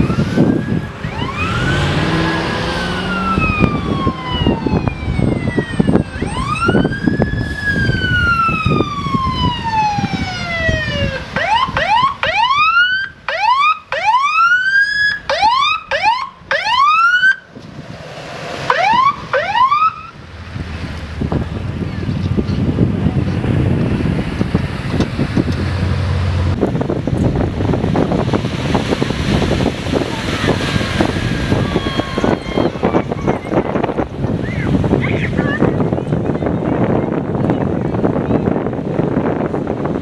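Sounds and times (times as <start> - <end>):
electronic siren wailing and yelping: 0.0 - 17.4, 18.7 - 20.2.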